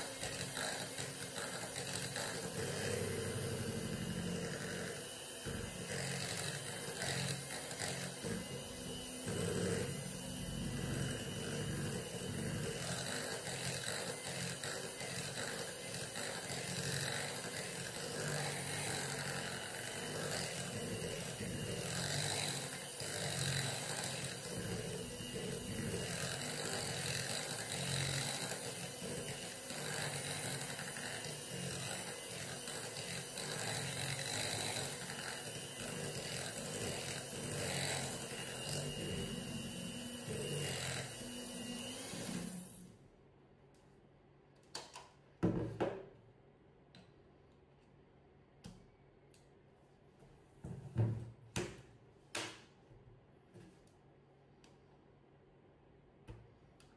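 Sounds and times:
electric hand mixer whisking: 0.0 - 42.9.

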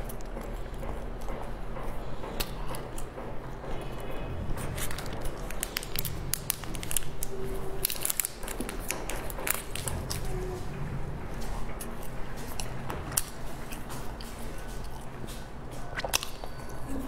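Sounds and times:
soft chewing: 0.0 - 17.0
plastic wrapper crinkling: 4.7 - 10.4.

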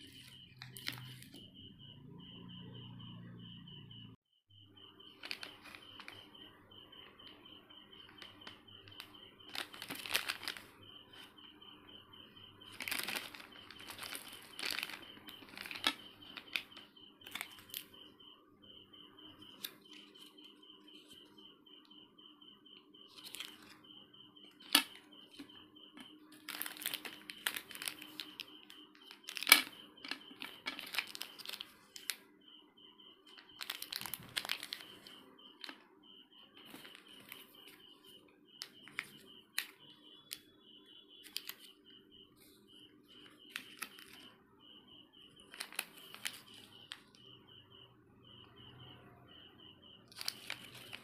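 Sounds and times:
plastic wrappers crinkling: 5.2 - 6.1, 9.5 - 10.7, 12.7 - 17.8, 26.3 - 28.4, 29.0 - 32.1, 33.6 - 35.8, 36.6 - 37.4, 43.5 - 44.2, 45.4 - 47.1, 50.1 - 51.0.

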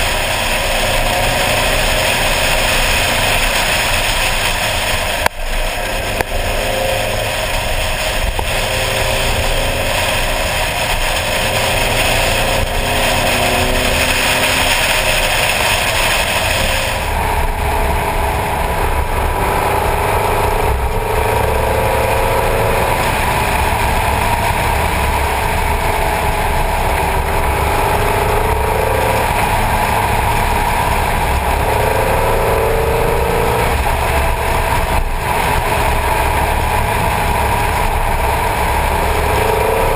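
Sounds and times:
car engine running: 0.0 - 39.9
wind and road noise: 0.0 - 39.9.

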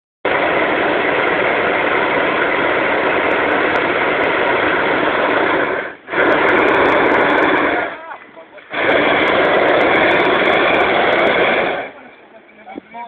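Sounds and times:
propane burner blast: 0.2 - 13.0.

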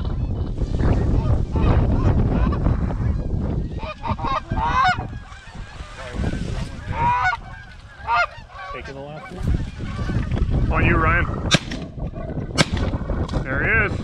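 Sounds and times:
wind buffeting microphone: 0.0 - 14.0
geese honking: 1.2 - 11.3.

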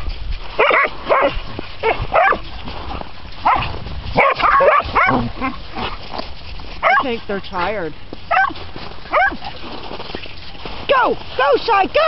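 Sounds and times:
dog barking: 0.6 - 2.4, 3.4 - 5.3, 6.8 - 7.1, 8.3 - 9.5.

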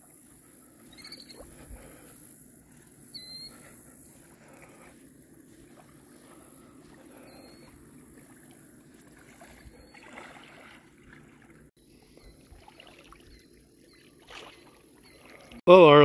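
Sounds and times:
waves lapping on shore: 5.5 - 11.7.

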